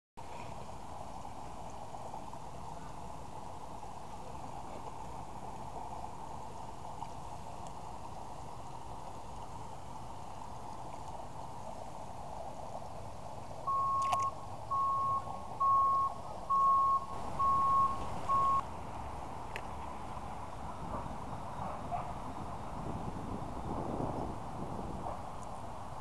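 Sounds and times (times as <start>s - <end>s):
reversing alarm beeping: 13.7s - 18.6s.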